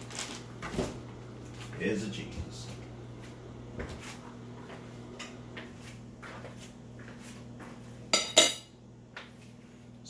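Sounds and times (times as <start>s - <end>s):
fork clinking on plate: 8.2s - 8.7s.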